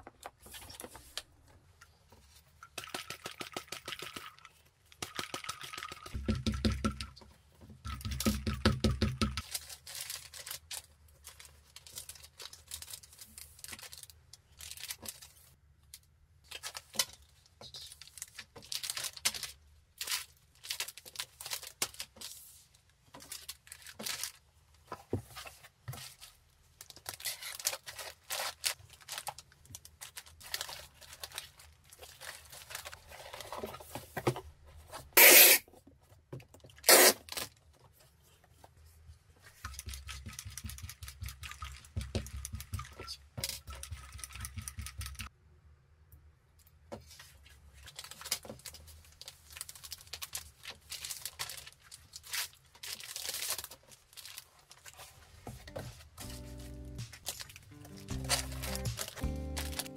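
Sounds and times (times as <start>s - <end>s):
plastic bags crinkling: 9.4s - 15.6s, 18.0s - 22.3s, 26.1s - 33.7s, 47.7s - 59.9s.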